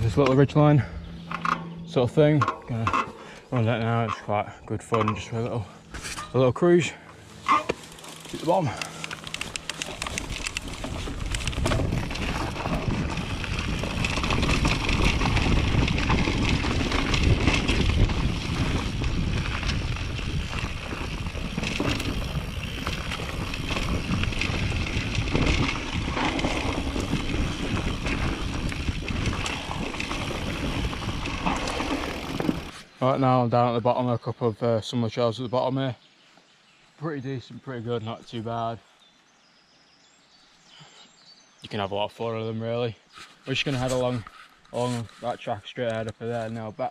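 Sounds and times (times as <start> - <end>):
bike parts clicking and rattling: 1.2 - 6.4, 7.4 - 32.8
bike tyres rumbling on dirt: 7.2 - 32.9
wind buffeting microphone: 8.7 - 32.7.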